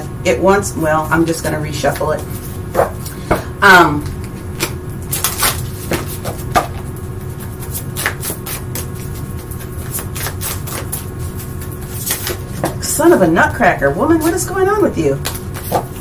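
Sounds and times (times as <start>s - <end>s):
cards being shuffled: 4.0s - 12.8s, 15.2s - 16.0s.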